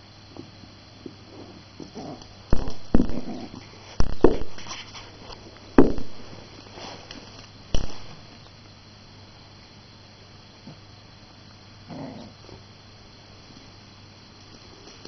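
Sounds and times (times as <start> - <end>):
puppy growling and yapping: 1.4 - 3.7, 11.9 - 12.6.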